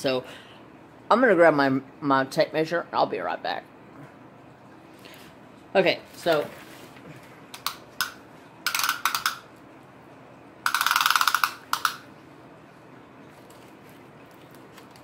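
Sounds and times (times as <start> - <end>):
tape measure clicks: 7.6 - 9.4, 10.7 - 12.0
tape measure blade rattling out: 10.7 - 12.0.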